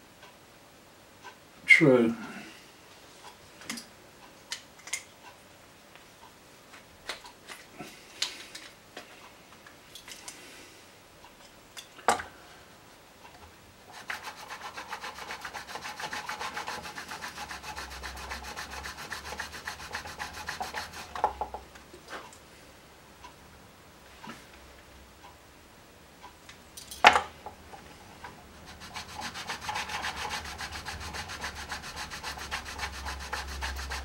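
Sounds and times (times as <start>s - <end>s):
reed rubbed on sandpaper: 13.9s - 21.1s, 28.7s - 34.0s.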